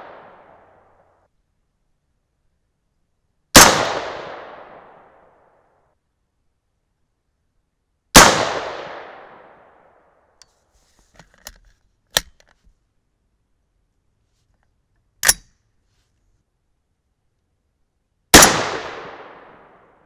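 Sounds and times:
rifle shot echoing: 0.0 - 0.7, 3.6 - 5.2, 8.2 - 9.8, 18.3 - 20.0.

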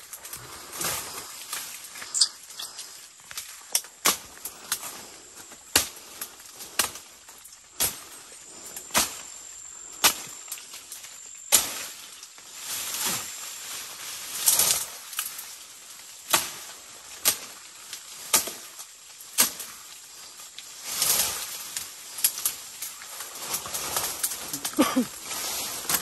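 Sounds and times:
machete chopping brush: 18.3 - 18.7.

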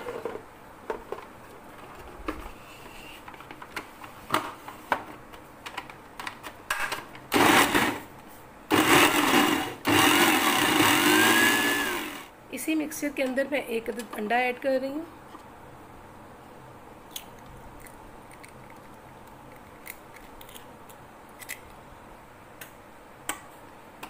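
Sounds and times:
food processor motor chopping: 7.4 - 8.0, 8.7 - 12.3.

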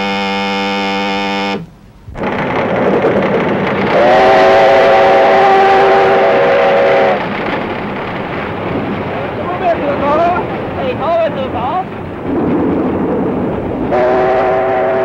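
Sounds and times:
steam whistle blast: 0.0 - 1.7, 3.9 - 7.2, 13.9 - 15.0
steam locomotive rush and rattle: 0.0 - 15.0.

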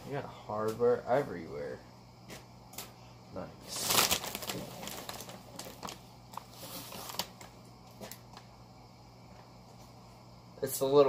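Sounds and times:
plastic wrap crinkling: 3.6 - 8.4.

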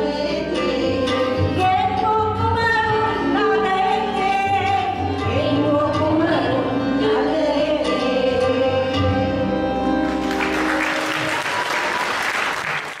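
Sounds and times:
keyboard and hand drum: 0.0 - 12.1
audience applause: 10.1 - 13.0.

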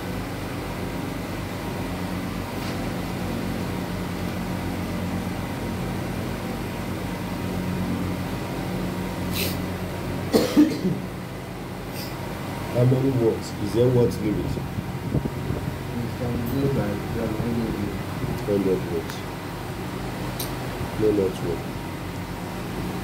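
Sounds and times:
machine hum: 0.0 - 23.0
person coughing: 10.3 - 11.0
sharp click: 20.4 - 20.6.

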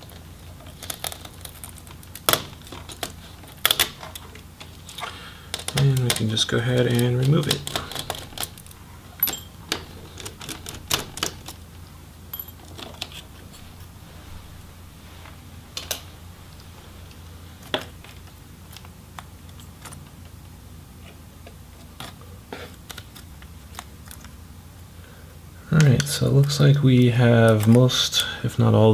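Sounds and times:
clicks of plastic laptop parts: 0.1 - 8.8.

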